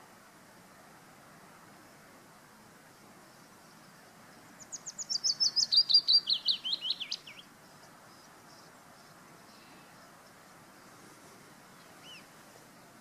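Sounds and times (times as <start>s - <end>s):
willow warbler singing: 2.8s - 13.0s.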